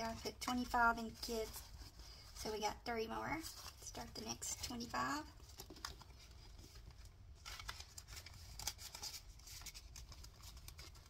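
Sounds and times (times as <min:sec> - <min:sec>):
paper bills rustling: 0:03.3 - 0:11.0.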